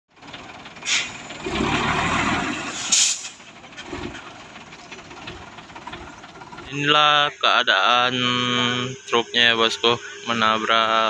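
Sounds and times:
heavy truck driving past: 0:00.1 - 0:07.4
air brake hiss: 0:00.8 - 0:01.3, 0:02.7 - 0:03.4, 0:10.0 - 0:10.3.

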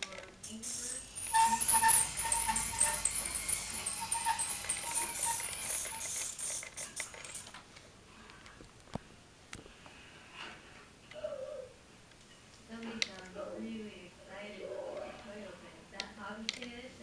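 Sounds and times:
toy truck motor whirring: 0:00.4 - 0:07.6.

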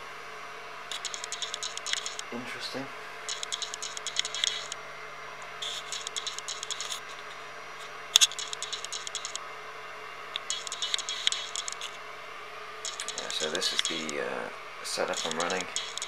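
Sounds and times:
drill bit rattling metal chips: 0:00.9 - 0:02.3, 0:08.2 - 0:09.4, 0:12.9 - 0:14.2, 0:15.0 - 0:16.0.

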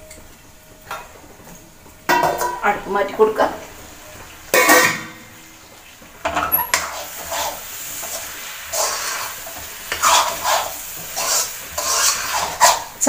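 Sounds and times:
spoon scraping a metal pan: 0:06.3 - 0:13.0.

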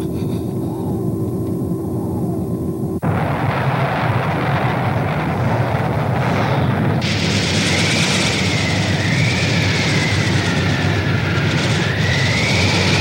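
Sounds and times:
low electronic hum with held tone: 0:00.0 - 0:09.2
loud rushing rumble: 0:00.8 - 0:13.0.

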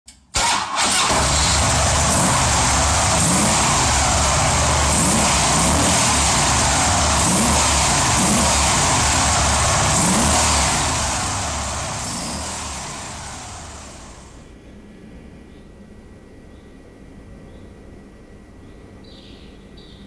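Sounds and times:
motorcycle engine revving: 0:00.4 - 0:14.4.

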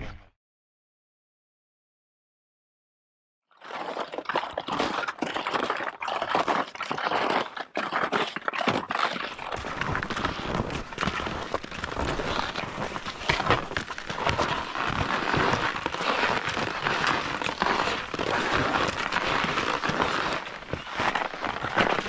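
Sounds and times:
ski-pole plants: 0:03.6 - 0:22.0
skis scraping over snow: 0:09.6 - 0:22.0.

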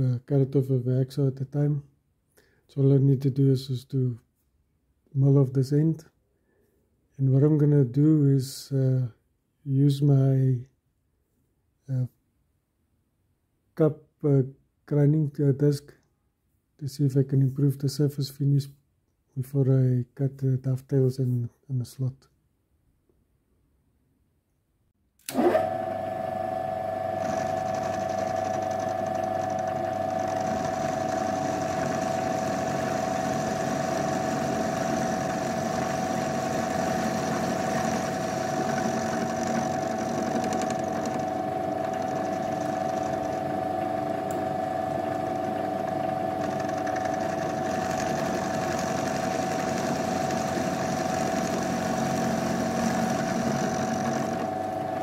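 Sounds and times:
milling machine cutting metal: 0:27.1 - 0:55.0.

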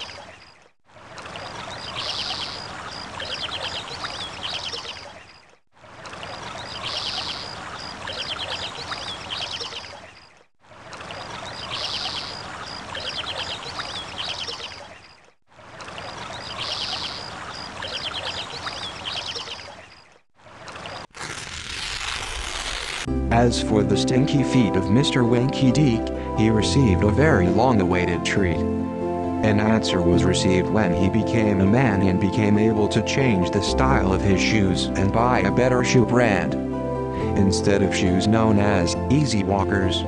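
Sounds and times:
birds chirping and trilling: 0:00.0 - 0:20.2
running water: 0:00.0 - 0:23.0.

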